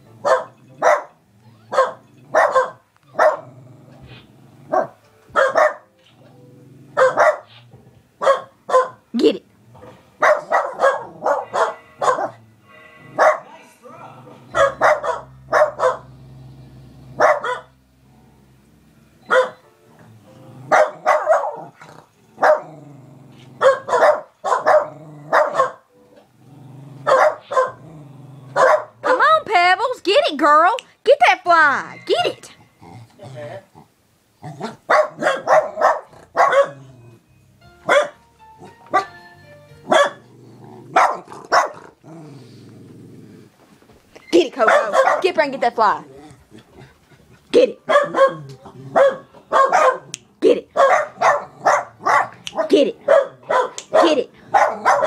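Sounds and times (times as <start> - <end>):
small dog barking: 0.2 - 3.4, 4.7 - 5.8, 7.0 - 7.6, 8.2 - 9.0, 10.2 - 12.4, 13.2 - 13.5, 14.5 - 16.1, 17.2 - 17.7, 19.3 - 19.6, 20.7 - 21.7, 22.4 - 22.7, 23.6 - 25.8, 27.1 - 27.8, 28.6 - 29.3, 34.6 - 36.8, 37.9 - 38.2, 39.9 - 40.2, 40.9 - 41.9, 44.6 - 45.3, 47.9 - 55.0
dog growling: 1.3 - 5.0, 6.2 - 8.1, 9.5 - 19.2, 19.9 - 24.0, 24.6 - 29.2, 32.4 - 37.3, 39.9 - 43.7, 45.8 - 50.2, 51.0 - 53.4, 54.3 - 55.0.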